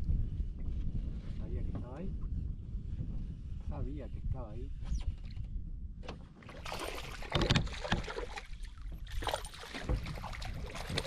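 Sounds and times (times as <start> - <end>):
water splashing around boat: 6.4 - 11.0.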